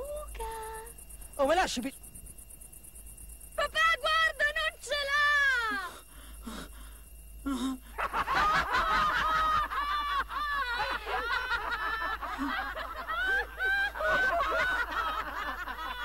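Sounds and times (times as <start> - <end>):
group of people laughing: 7.9 - 16.0.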